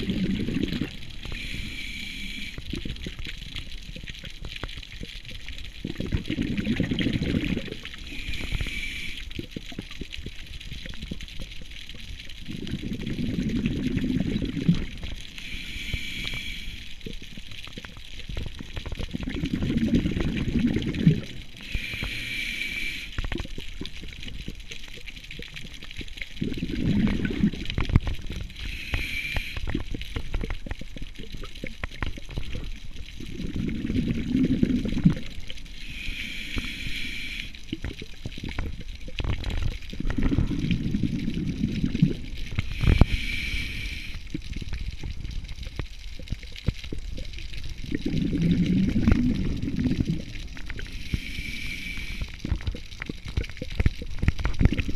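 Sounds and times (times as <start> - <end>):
exhaled bubbles rumbling: 0.0 - 54.9
small clicks and crackles: 0.0 - 54.9
regulator inhale hiss: 1.1 - 2.8, 7.9 - 9.5, 15.2 - 17.1, 21.6 - 23.4, 28.5 - 29.9, 35.7 - 37.8, 42.6 - 44.5, 50.8 - 52.6.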